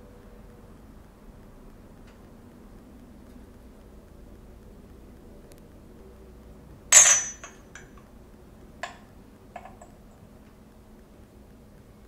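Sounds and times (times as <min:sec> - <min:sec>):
miniature cookware clinking: 0:06.9 - 0:08.0, 0:09.6 - 0:10.0.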